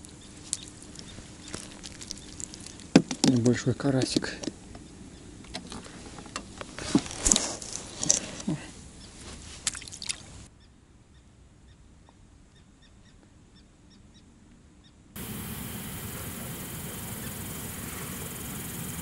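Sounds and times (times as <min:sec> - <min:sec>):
rustling with clicks and knocks: 0:05.5 - 0:10.2
steady hiss: 0:15.2 - 0:19.0.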